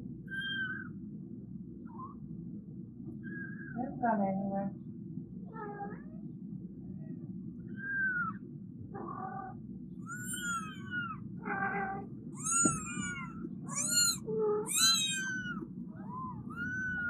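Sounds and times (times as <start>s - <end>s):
steady low hum: 0.0s - 17.0s
kitten mewing: 10.0s - 17.0s.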